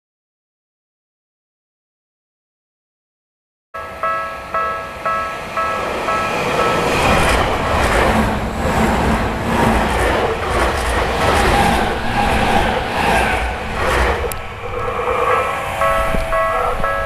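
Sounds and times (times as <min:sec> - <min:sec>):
level crossing warning bell: 0:03.8 - 0:07.7, 0:14.5 - 0:17.0
electric train passing: 0:03.8 - 0:17.0.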